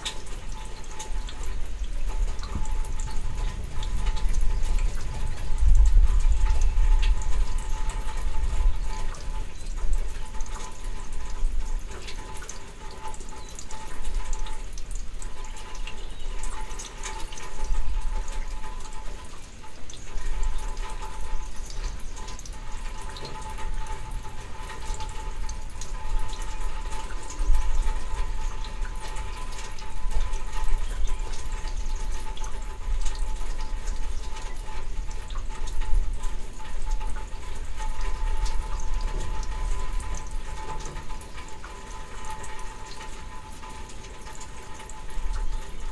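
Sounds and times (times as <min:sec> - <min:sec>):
raindrops ticking: 0:00.0 - 0:45.9
steady rain: 0:00.0 - 0:45.9
thunder rumble: 0:02.5 - 0:08.7.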